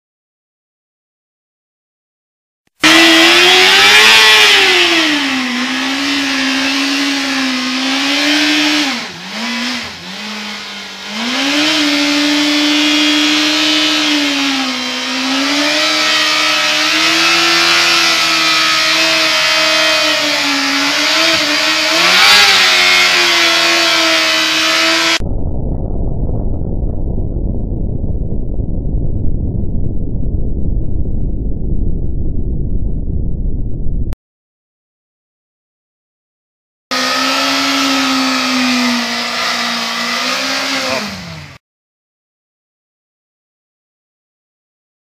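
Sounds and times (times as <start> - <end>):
motorcycle engine at high revs: 2.8 - 25.2, 36.9 - 41.6
dull low rumble: 25.1 - 34.2.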